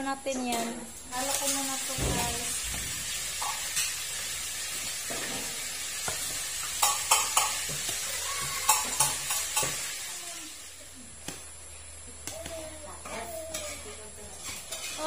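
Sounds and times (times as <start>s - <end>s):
steady hiss: 0.8s - 13.0s
ladle stirring in metal pot: 5.0s - 9.9s, 14.4s - 15.0s.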